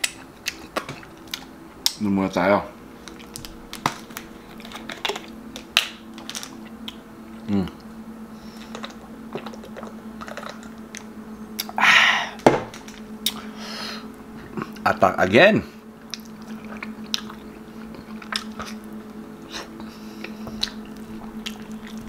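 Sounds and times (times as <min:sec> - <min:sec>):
low steady hum: 0:00.0 - 0:22.0
person drinking: 0:08.6 - 0:10.8
person sighing ahh: 0:11.8 - 0:12.4.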